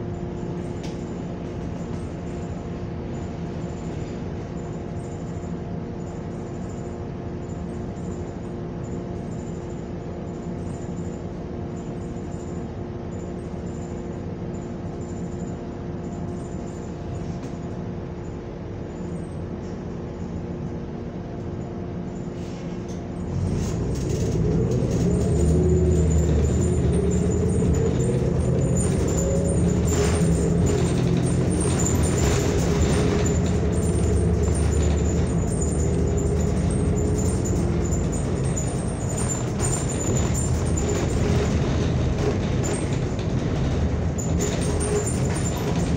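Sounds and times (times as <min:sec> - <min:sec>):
bus engine idling and revving: 0:22.9 - 0:45.9.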